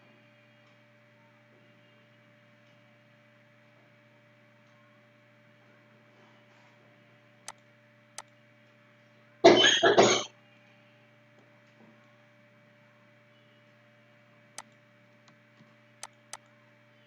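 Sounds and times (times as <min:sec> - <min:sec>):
low electrical hum: 0:00.0 - 0:17.0
computer mouse clicks: 0:07.4 - 0:08.4, 0:14.6 - 0:15.4, 0:16.0 - 0:16.5
person coughing: 0:09.5 - 0:10.3.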